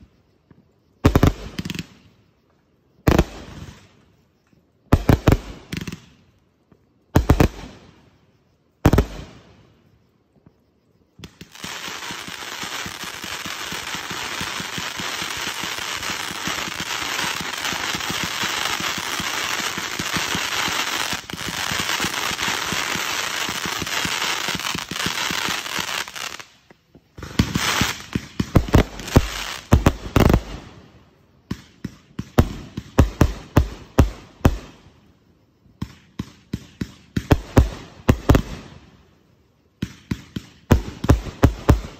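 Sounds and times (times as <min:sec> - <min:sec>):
fireworks crackling: 0:05.0 - 0:08.2, 0:11.2 - 0:34.9, 0:39.8 - 0:41.9.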